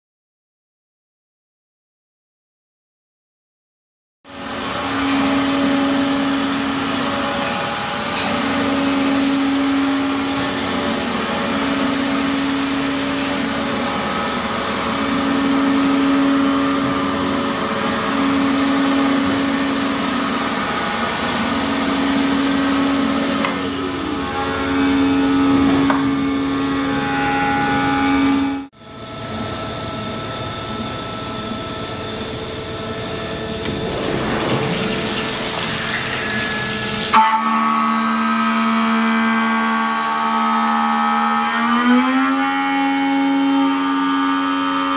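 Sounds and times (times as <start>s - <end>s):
humming cutting tone: 4.7s - 28.7s
falling whine: 31.8s - 37.8s
machine hiss: 33.6s - 37.2s.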